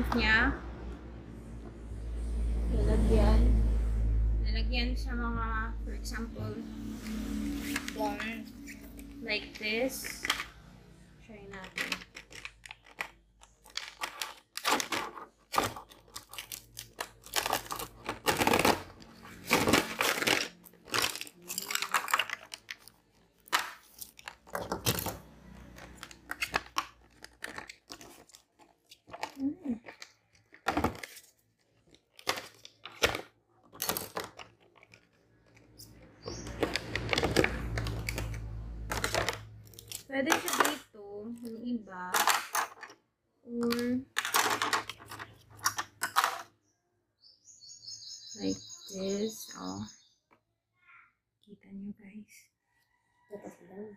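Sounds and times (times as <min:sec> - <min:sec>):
plastic parts clicking: 0:11.5 - 0:40.8, 0:41.4 - 0:46.5
packaging crinkling and rustling: 0:11.6 - 0:40.9.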